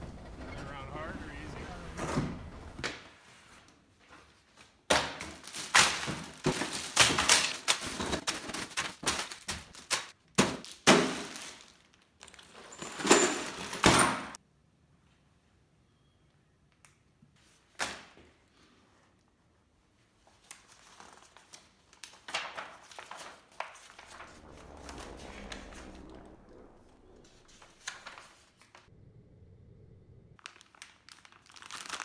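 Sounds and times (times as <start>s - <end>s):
plastic bags crinkling: 30.4s - 32.0s.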